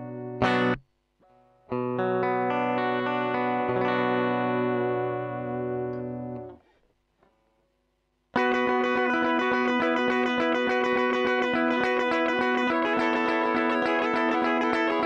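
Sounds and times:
electric guitar chord sustaining: 0:08.4 - 0:15.0.

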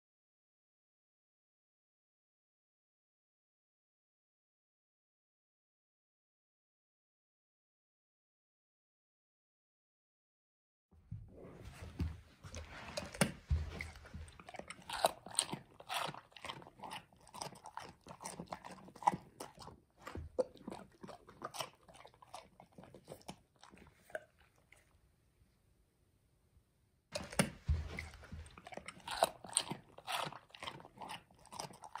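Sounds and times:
dog crunching cucumber: 0:11.7 - 0:24.9, 0:27.1 - 0:32.0.

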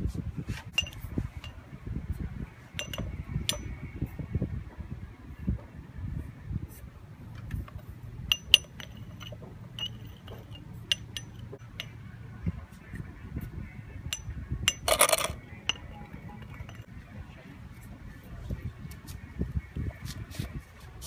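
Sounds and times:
metal taps on glass bottle: 0:00.7 - 0:01.6, 0:02.8 - 0:03.7, 0:07.6 - 0:12.0, 0:14.1 - 0:16.9.

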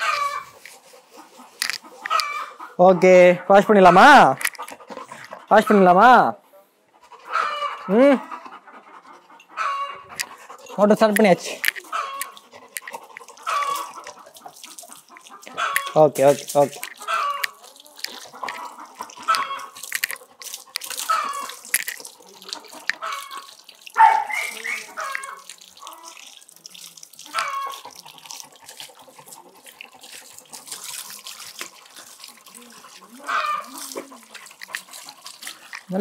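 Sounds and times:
water splashing on concrete: 0:00.0 - 0:02.5, 0:10.1 - 0:36.0
hose water spraying: 0:10.1 - 0:36.0.

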